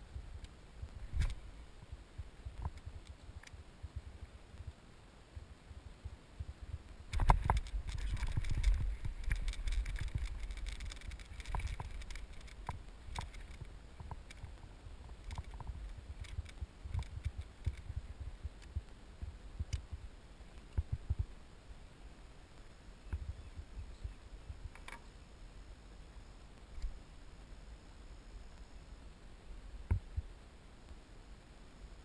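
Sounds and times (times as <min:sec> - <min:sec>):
rod and reel clicks: 0:07.1 - 0:18.8, 0:24.7 - 0:25.1.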